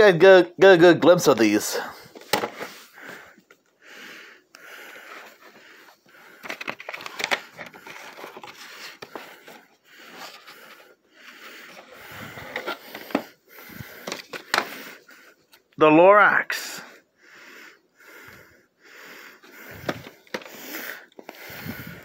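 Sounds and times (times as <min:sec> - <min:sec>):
plastic tape cases clicking: 0:06.4 - 0:09.6.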